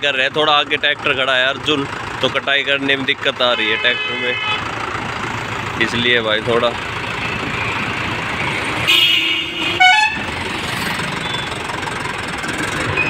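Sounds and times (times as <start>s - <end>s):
tractor engine running: 0.0s - 13.0s
vehicle horn: 3.5s - 4.6s, 8.9s - 10.3s.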